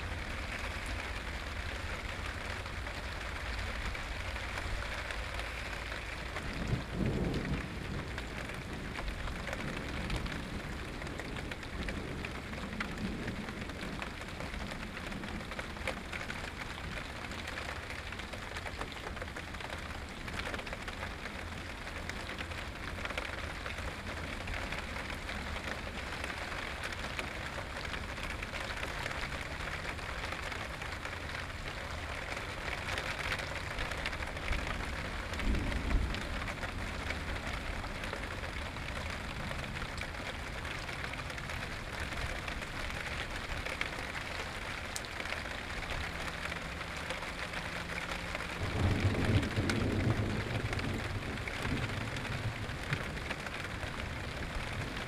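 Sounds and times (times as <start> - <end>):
low rumble of thunder: 0.0 - 18.3, 31.4 - 42.6, 48.4 - 55.0
steady rain falling: 0.0 - 55.0.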